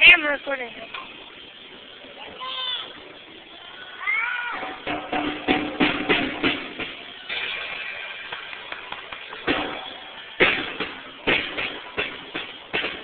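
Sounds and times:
drumstick hitting drums: 4.6s - 7.7s, 9.2s - 13.0s.

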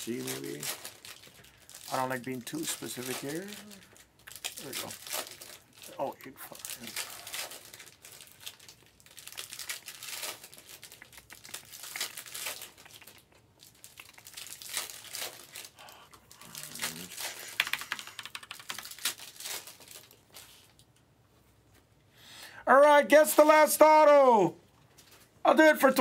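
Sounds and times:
foil wrappers crinkling and tearing: 0.0s - 20.9s.

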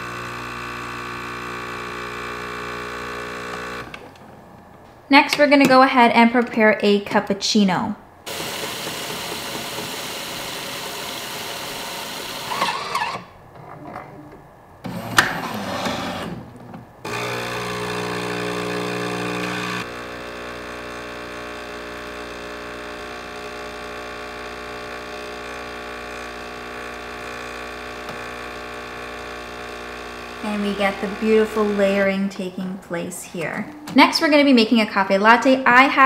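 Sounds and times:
milk frother hissing: 0.0s - 3.9s, 8.3s - 13.1s, 17.1s - 32.0s
coffee grinder running: 0.0s - 4.0s, 8.3s - 13.2s, 14.9s - 16.4s, 17.1s - 32.0s
pump humming: 17.1s - 31.9s.

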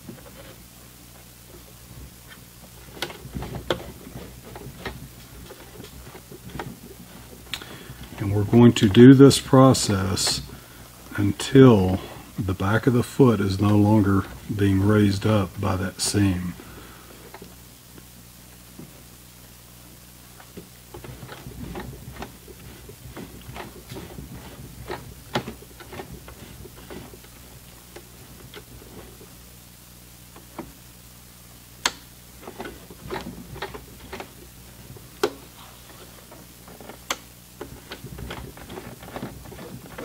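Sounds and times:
sewing machine clicking: 2.8s - 10.6s, 20.5s - 29.3s, 31.8s - 40.0s.

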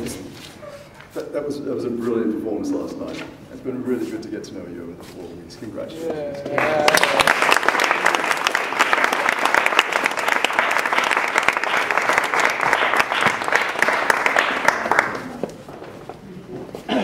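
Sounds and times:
audience applauding: 6.4s - 15.7s.

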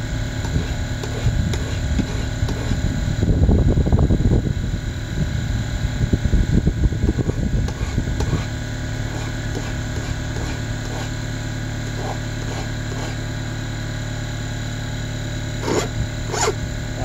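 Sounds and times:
mechanical hum: 0.0s - 17.0s
file scraping steel bar: 0.4s - 2.8s, 7.2s - 11.2s, 11.9s - 13.2s, 15.6s - 16.6s.

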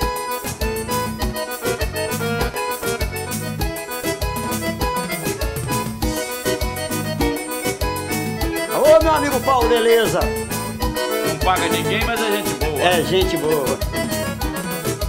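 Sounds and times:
keyboard accordion melody: 0.0s - 15.0s
strummed acoustic guitar: 0.0s - 15.0s
steady low beat: 1.2s - 9.6s.

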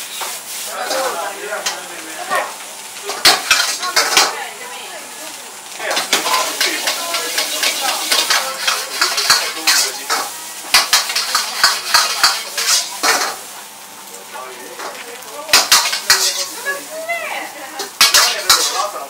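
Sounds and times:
rice sizzling: 0.0s - 19.0s
metal ladle clanking on wok: 5.9s - 13.4s, 15.5s - 16.5s, 17.8s - 18.9s.

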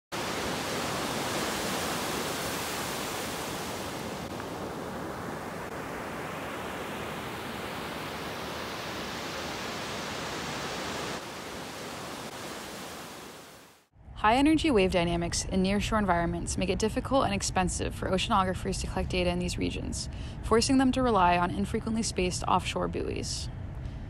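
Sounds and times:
ocean surf breaking: 0.1s - 13.9s.

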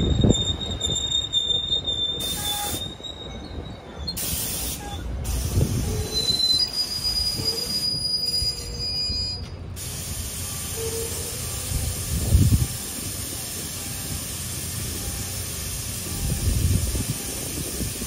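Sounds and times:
high wheel squeal: 0.0s - 9.7s, 10.4s - 13.0s
train wheels rumbling on rails: 0.0s - 18.0s
bursts of hiss: 4.2s - 5.9s, 9.8s - 18.0s.

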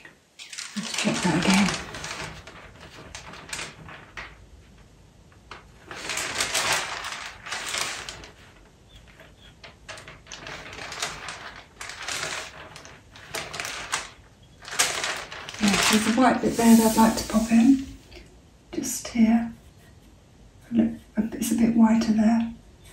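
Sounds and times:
paper rustling: 0.4s - 18.2s.

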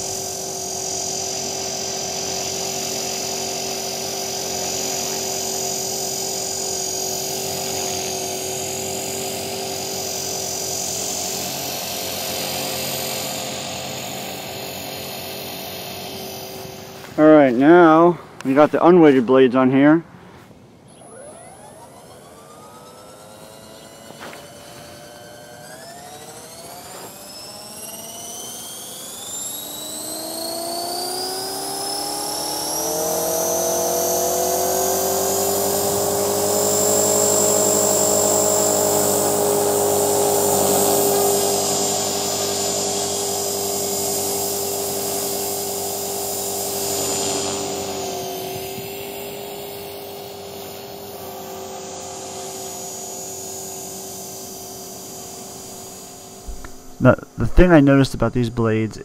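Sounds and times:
rc helicopter motor and rotor whine: 0.0s - 58.8s.

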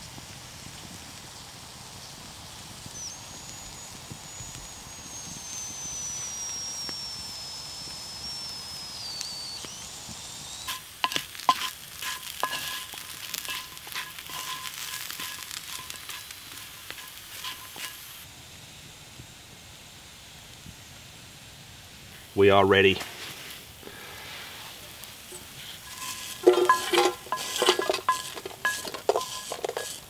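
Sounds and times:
potatoes sizzling in a skillet: 0.0s - 30.0s
thin whistle falling in pitch: 4.4s - 10.8s
utensil scraping and clinking on pan: 10.7s - 18.1s, 25.3s - 30.0s.

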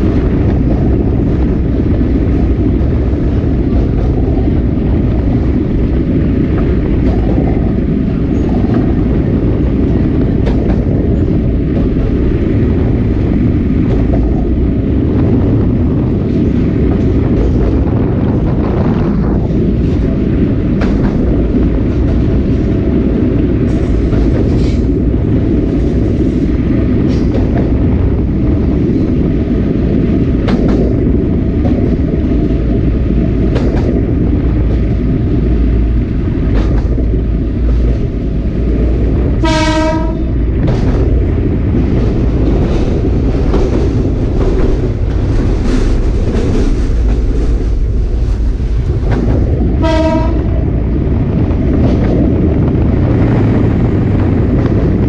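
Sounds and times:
train wheels on rails: 0.0s - 55.0s
train horn: 39.4s - 40.4s, 49.8s - 50.6s.

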